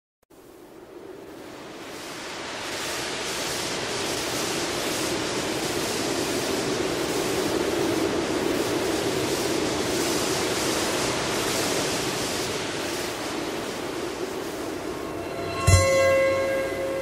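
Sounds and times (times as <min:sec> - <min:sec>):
low drone: 0:14.6 - 0:17.0.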